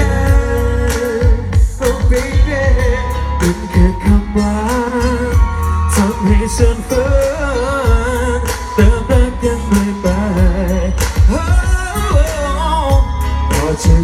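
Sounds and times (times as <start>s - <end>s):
band with heavy bass: 0.0s - 14.0s
person singing with vibrato: 0.0s - 14.0s
drum beat: 0.2s - 4.9s, 8.8s - 14.0s.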